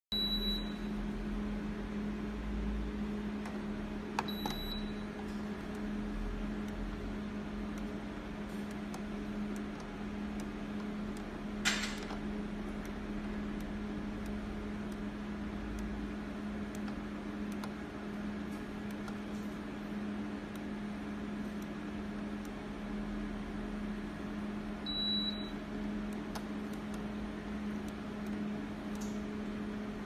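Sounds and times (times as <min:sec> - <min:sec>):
steady low hum: 0:00.1 - 0:30.0
selector dial clicks: 0:03.4 - 0:04.8, 0:07.7 - 0:08.0, 0:08.6 - 0:11.4, 0:12.0 - 0:16.0, 0:16.6 - 0:17.8, 0:26.1 - 0:27.1.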